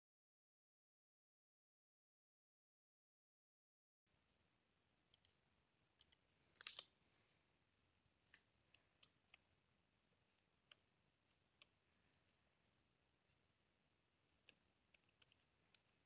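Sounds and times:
low hiss: 0:04.1 - 0:16.0.

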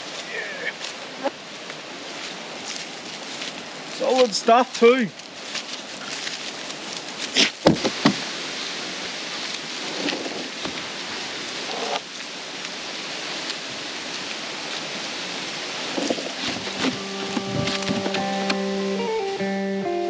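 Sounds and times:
steady hiss: 0:00.0 - 0:20.0
rope rustling: 0:05.1 - 0:08.3, 0:13.3 - 0:19.4
light knocks on log: 0:07.6 - 0:08.2.

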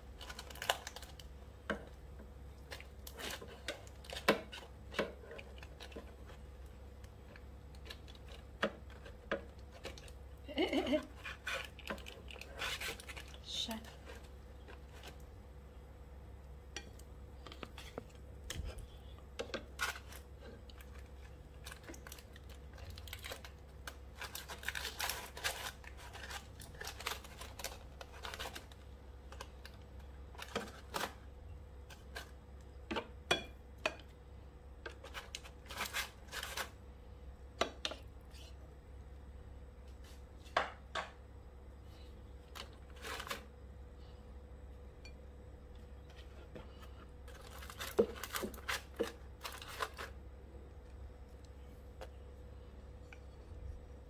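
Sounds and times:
foil crinkling: 0:00.0 - 0:01.3, 0:07.7 - 0:15.2, 0:19.6 - 0:31.2, 0:34.9 - 0:36.8, 0:42.5 - 0:43.5, 0:47.3 - 0:50.2
tongs clicking and scraping: 0:11.0 - 0:15.3.

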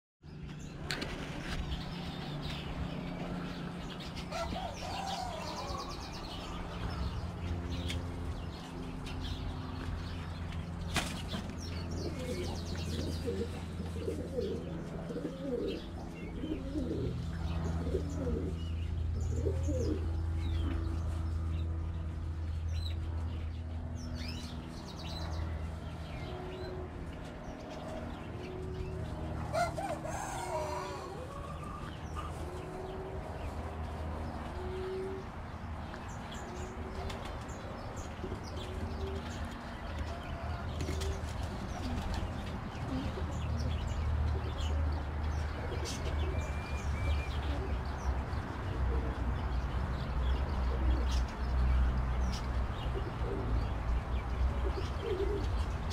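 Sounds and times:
pigeons cooing: 0:04.2 - 0:07.3, 0:11.6 - 0:20.9, 0:26.0 - 0:35.5, 0:36.3 - 0:46.6, 0:47.3 - 0:51.4, 0:52.3 - 0:55.9.

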